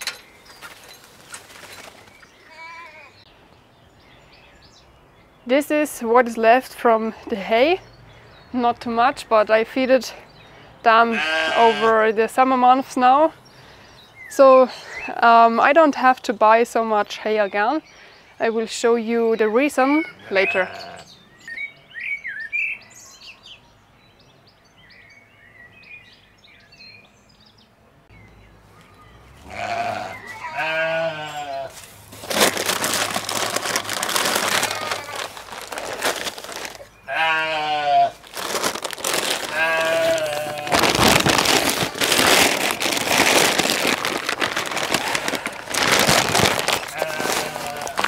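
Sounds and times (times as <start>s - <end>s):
sheep bleating: 2.5s - 3.2s, 11.1s - 12.0s, 20.3s - 21.1s, 29.5s - 31.8s, 34.5s - 35.4s, 37.1s - 38.2s, 39.5s - 40.8s, 44.9s - 45.6s, 46.8s - 48.0s
hay rustling: 31.7s - 36.9s, 38.1s - 48.0s.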